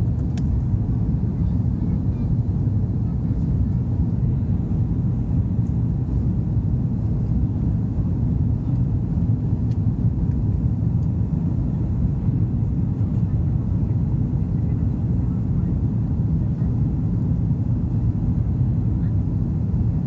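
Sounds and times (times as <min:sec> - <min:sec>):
jet engines low rumble: 0:00.0 - 0:20.0.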